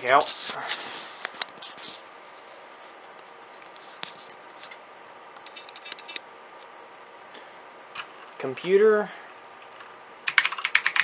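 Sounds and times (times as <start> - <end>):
faint steady hum: 0.0 - 11.0
computer mouse clicks: 5.4 - 6.2.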